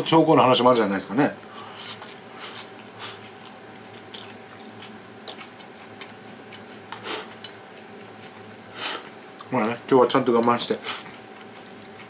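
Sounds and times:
faint steady hum: 0:00.0 - 0:12.0
person chewing food: 0:01.6 - 0:09.8, 0:10.9 - 0:12.0.

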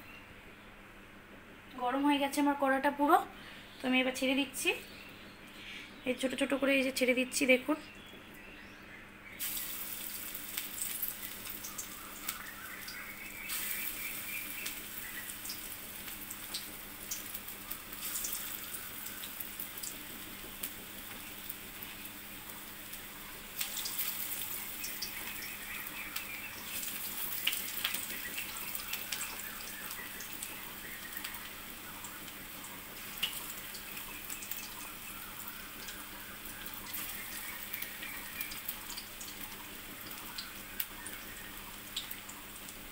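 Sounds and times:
deep-frying in hot oil: 0:09.2 - 0:42.9.

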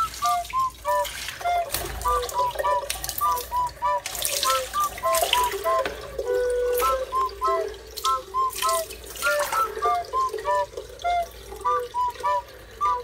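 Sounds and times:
poured water splashing: 0:00.0 - 0:13.0
steady water trickle: 0:00.0 - 0:13.0
water drops plinking into basin: 0:00.0 - 0:13.0.

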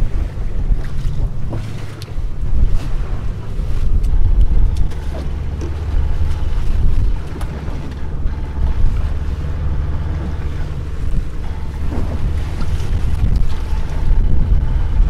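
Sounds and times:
boat engine drone: 0:00.0 - 0:15.0
wind buffeting microphone: 0:00.0 - 0:15.0.

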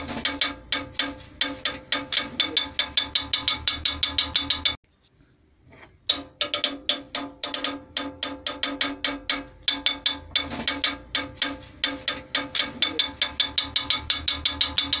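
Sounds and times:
upbeat percussive music: 0:00.0 - 0:04.8, 0:09.8 - 0:15.0.

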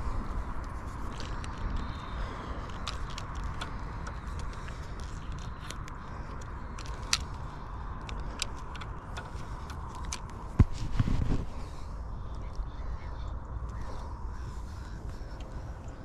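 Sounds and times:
wind rumbling on microphone: 0:00.0 - 0:16.0.

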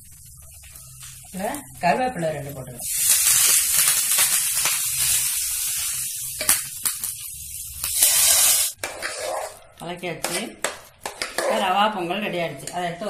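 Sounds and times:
hot oil poured sizzling: 0:00.0 - 0:09.6
leaves sizzling in hot oil: 0:00.0 - 0:09.6.

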